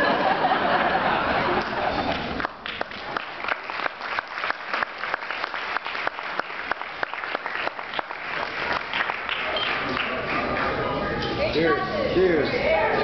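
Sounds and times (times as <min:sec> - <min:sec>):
people applauding: 0:01.5 - 0:11.1
single hand claps: 0:01.6 - 0:10.7.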